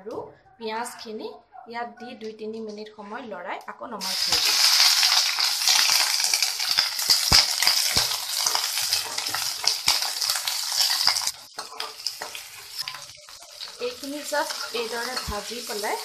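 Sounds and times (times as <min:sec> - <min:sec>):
vegetables sizzling in hot oil: 0:04.0 - 0:16.0
metal spatula knocking and scraping pan: 0:06.6 - 0:16.0.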